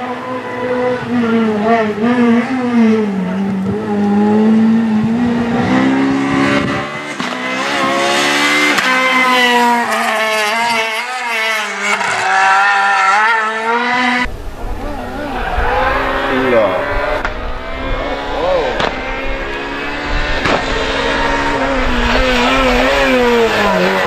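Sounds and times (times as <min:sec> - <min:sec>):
rally car engine revving: 0:00.0 - 0:24.0.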